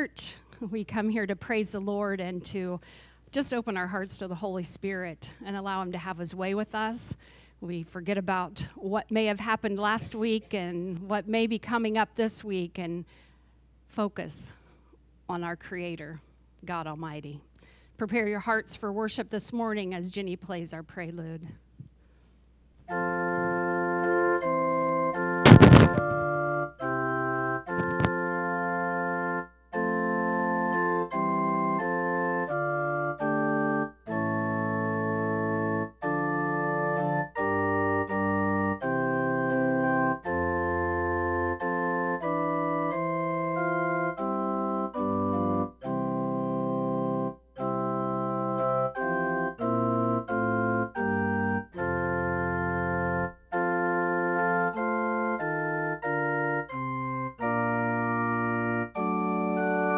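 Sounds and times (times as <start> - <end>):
organ playing held chords: 22.9 - 59.9.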